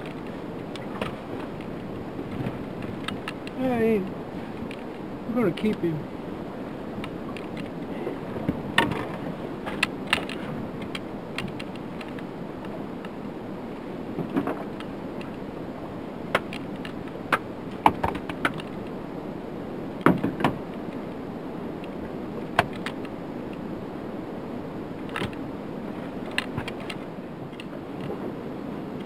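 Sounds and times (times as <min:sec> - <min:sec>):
gear knocking and clattering in boat: 0:00.0 - 0:06.0, 0:06.9 - 0:13.1, 0:14.1 - 0:15.5, 0:16.3 - 0:19.0, 0:20.0 - 0:21.0, 0:25.0 - 0:28.2
wind and water rushing: 0:00.0 - 0:29.0.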